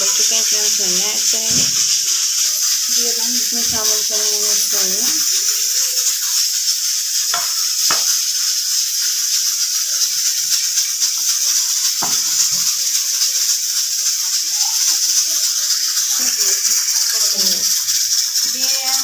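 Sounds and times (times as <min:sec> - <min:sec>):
steady high hiss: 0:00.0 - 0:19.0
ladle clinking against pot: 0:07.3 - 0:08.2.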